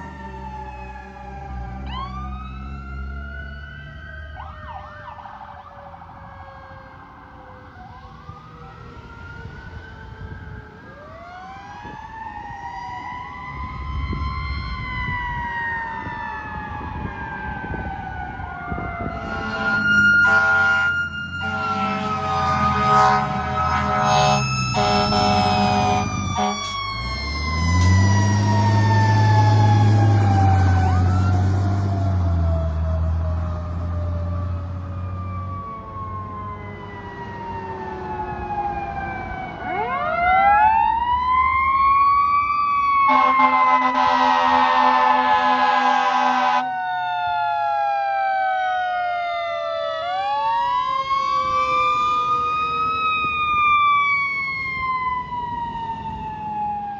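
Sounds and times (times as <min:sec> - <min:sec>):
siren wail sweeping up: 0:00.0 - 0:56.9
siren winding down: 0:00.0 - 0:56.9
truck engine drone: 0:16.5 - 0:46.6
air horn blasts: 0:19.1 - 0:26.7, 0:43.1 - 0:46.6.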